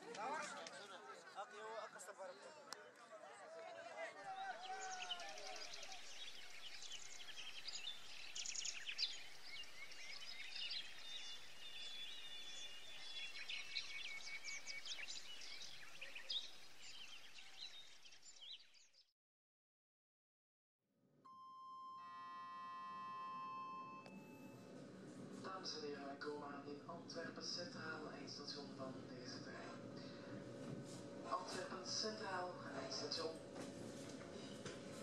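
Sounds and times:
outdoor background noise: 0.0 - 18.6, 23.0 - 35.0
birds chirping: 4.2 - 19.0, 26.6 - 35.0
electrical hum inside a train: 22.3 - 35.0.

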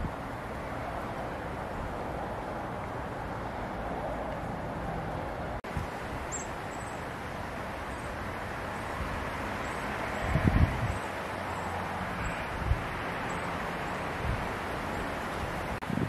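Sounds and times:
wind: 0.0 - 16.0
high bird chirps: 6.3 - 7.0.

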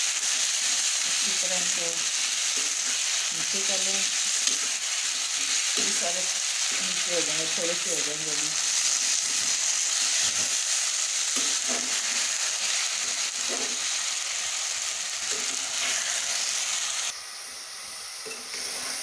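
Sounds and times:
greens sizzling in hot oil: 0.0 - 19.0
metal spatula stirring in pot: 4.2 - 7.0.

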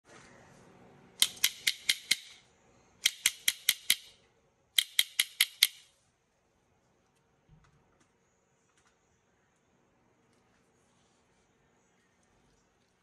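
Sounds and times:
sharp snapping clicks: 1.2 - 2.4, 3.0 - 4.1, 4.8 - 5.8.

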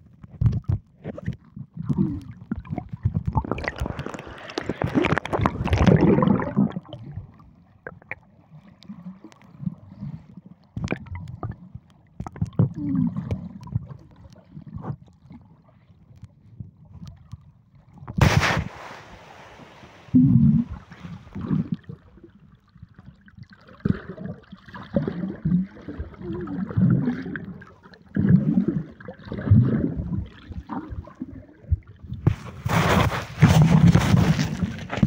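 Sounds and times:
underwater sloshing and gurgling: 0.0 - 35.0
water splashing: 2.1 - 8.2, 18.2 - 22.3.

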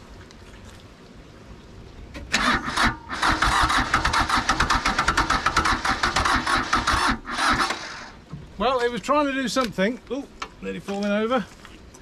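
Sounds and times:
diesel engine starter cranking: 2.2 - 8.2.

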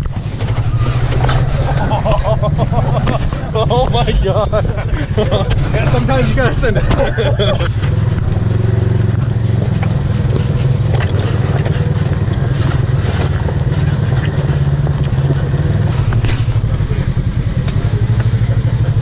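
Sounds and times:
utv engine droning: 0.0 - 19.0.

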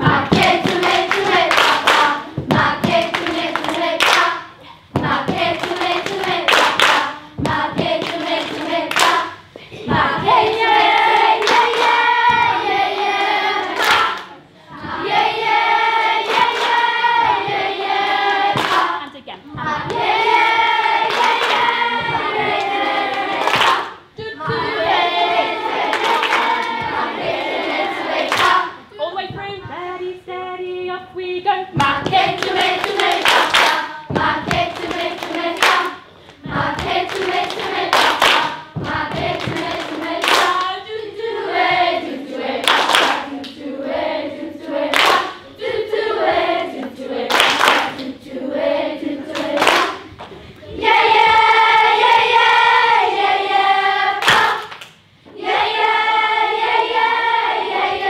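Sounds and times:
hand claps and slaps: 0.0 - 4.4, 5.0 - 9.3, 10.1 - 12.6, 13.6 - 14.3, 16.2 - 17.5, 18.5 - 19.0, 21.1 - 24.0, 28.3 - 28.7, 31.8 - 40.7, 42.6 - 43.6, 44.9 - 45.3, 46.8 - 48.2, 49.3 - 50.4, 54.2 - 55.0
children singing together: 0.0 - 28.9, 31.8 - 54.7, 55.3 - 58.0.

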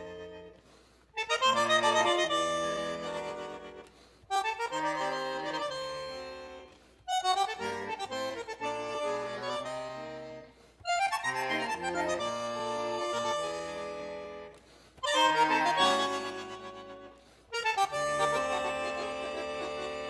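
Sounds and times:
slow instrumental music chords: 0.0 - 20.0.

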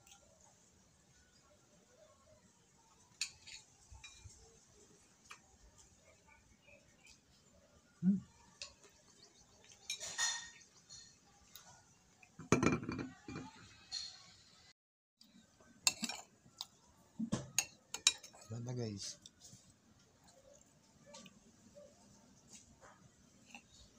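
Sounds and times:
fork clinking on ceramic plate: 9.8 - 11.2.

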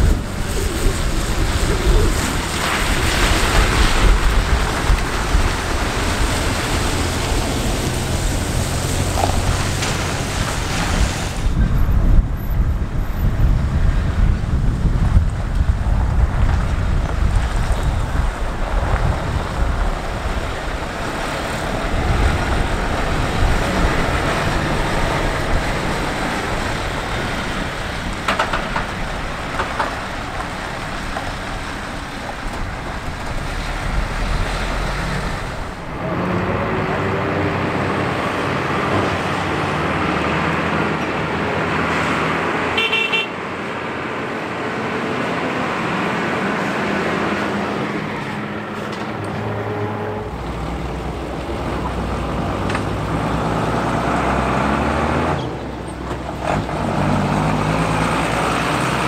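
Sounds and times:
diesel truck engines: 0.0 - 59.0
truck horn toot: 42.7 - 43.4.

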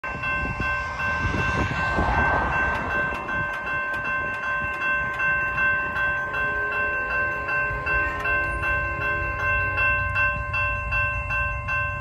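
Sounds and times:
low rumble: 0.0 - 6.3
railroad crossing bell ringing: 0.0 - 12.0.

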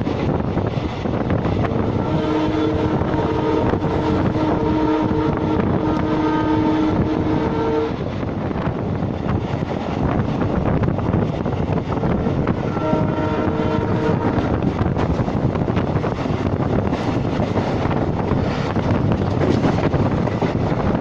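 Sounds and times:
train wheels rumbling on rails: 0.0 - 21.0
locomotive air horn blast: 1.7 - 8.0, 12.0 - 14.6.

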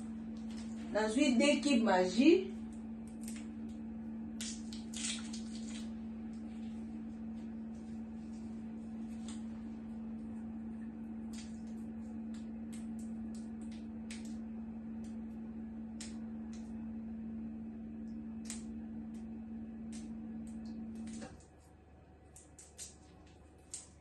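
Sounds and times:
steady low hum: 0.0 - 24.0
ingredients crackling and clicking: 2.6 - 6.7, 11.1 - 16.8, 18.0 - 24.0.

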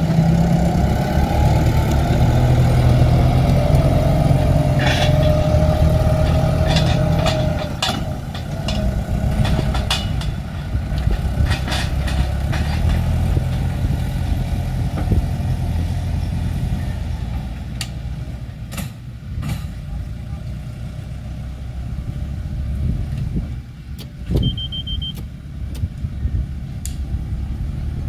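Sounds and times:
tractor engine running: 0.0 - 28.0
short high beep: 24.4 - 25.2.

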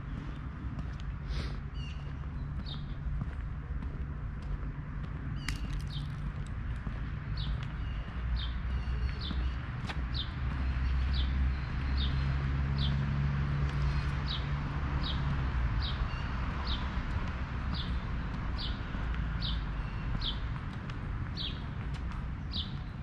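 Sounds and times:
steady low rumble: 0.0 - 8.3.

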